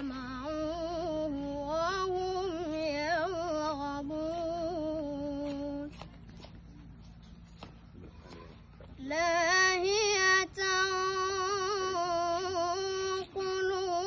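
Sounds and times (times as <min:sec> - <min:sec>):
boy chanting melodically: 0:00.0 - 0:06.0, 0:09.0 - 0:14.0.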